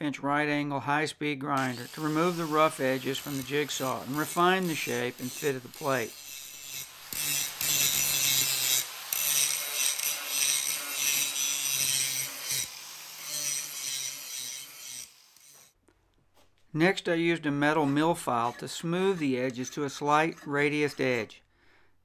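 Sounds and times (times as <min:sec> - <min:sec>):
angle grinder grinding metal: 0:01.6 - 0:15.8, 0:17.7 - 0:21.0.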